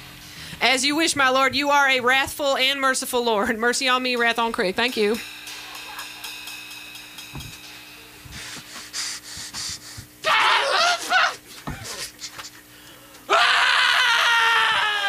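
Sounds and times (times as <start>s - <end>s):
low amplifier hum: 0.0s - 13.4s
person shrieking: 10.2s - 12.0s, 13.3s - 15.0s.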